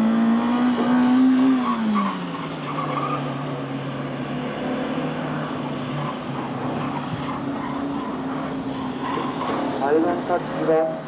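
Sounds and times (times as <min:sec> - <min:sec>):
car engine running hard: 0:00.0 - 0:11.0
tyre squeal: 0:01.5 - 0:03.4, 0:05.6 - 0:09.8.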